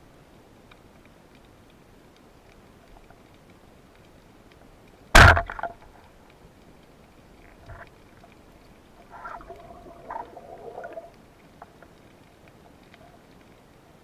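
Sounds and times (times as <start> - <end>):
speargun firing crack: 5.2 - 5.7.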